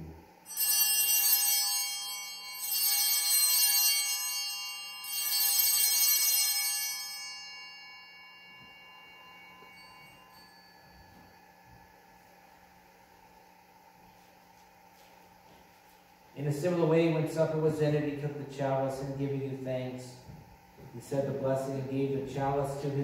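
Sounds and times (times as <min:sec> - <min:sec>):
altar bells ringing: 0:00.4 - 0:13.0.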